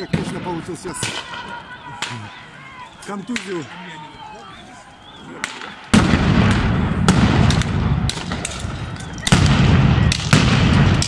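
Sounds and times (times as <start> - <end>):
sharp cracks and heavy rumble: 5.4 - 11.0
stun grenade blasts: 5.4 - 11.0.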